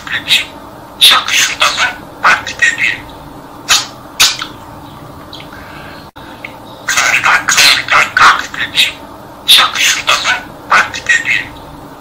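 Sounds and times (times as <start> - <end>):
budgerigar talking: 0.0 - 4.6, 6.8 - 11.7.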